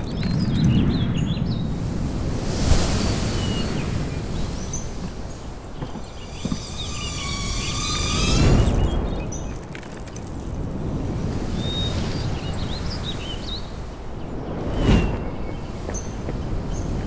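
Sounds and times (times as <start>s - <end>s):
thin layered whine: 0.0s - 1.2s, 6.2s - 11.0s
birds chirping: 0.0s - 1.8s, 2.9s - 17.0s.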